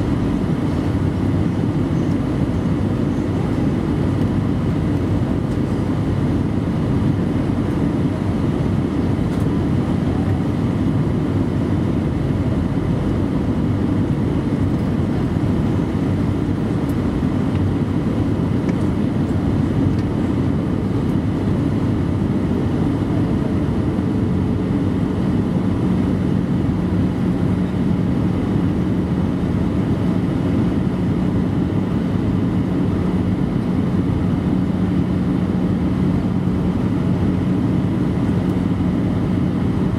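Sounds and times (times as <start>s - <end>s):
airflow rushing in aircraft cabin: 0.0s - 39.9s
jet engines droning: 0.0s - 39.9s.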